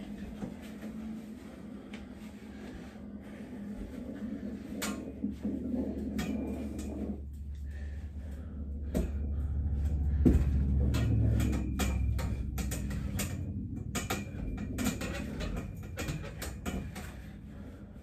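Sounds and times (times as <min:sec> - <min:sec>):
steady low hum: 0:00.0 - 0:18.0
metal dip bars clicking and knocking: 0:10.4 - 0:17.3.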